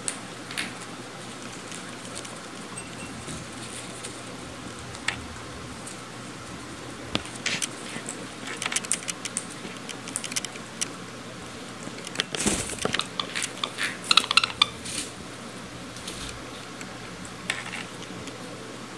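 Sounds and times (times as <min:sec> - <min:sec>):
rustling: 0:01.2 - 0:10.3
birds chirping and clicking: 0:11.8 - 0:14.8.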